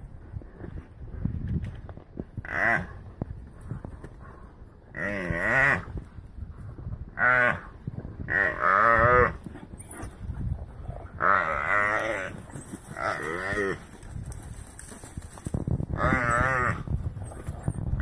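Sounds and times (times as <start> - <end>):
antelope moaning bleats: 11.1 - 13.9, 15.9 - 16.9.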